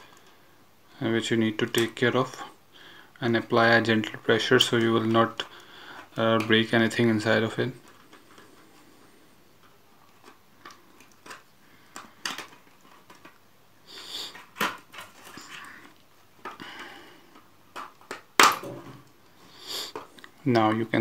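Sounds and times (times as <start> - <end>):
plastic scraping: 3.8 - 13.4, 14.0 - 19.1.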